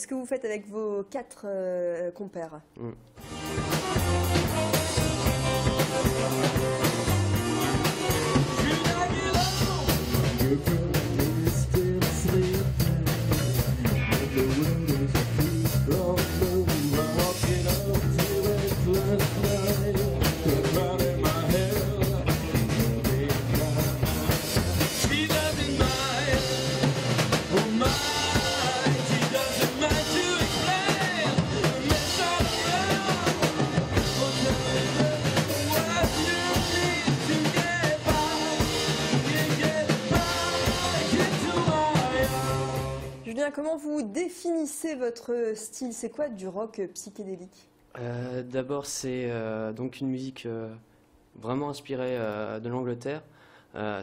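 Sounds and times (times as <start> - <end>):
electric bass: 2.8 - 43.2
electric guitars: 3.2 - 43.2
drum kit: 3.2 - 43.3
man singing: 4.9 - 43.2.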